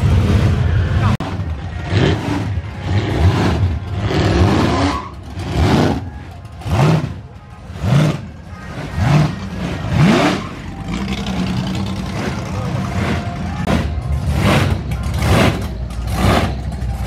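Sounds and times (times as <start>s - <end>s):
supercharged engine revving: 0.0s - 17.0s.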